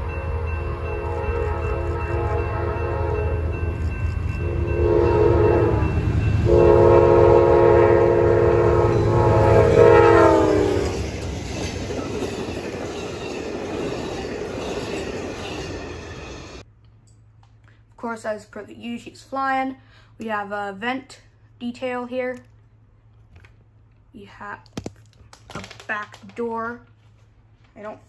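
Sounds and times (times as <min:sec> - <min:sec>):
locomotive horn chord: 0:00.0 - 0:11.2
train cars rolling: 0:00.0 - 0:16.6.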